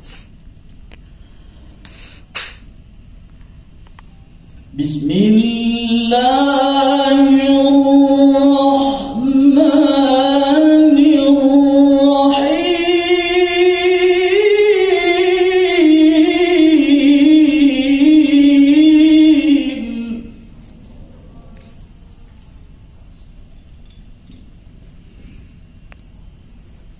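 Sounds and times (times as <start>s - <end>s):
man chanting into a microphone: 4.7s - 20.5s.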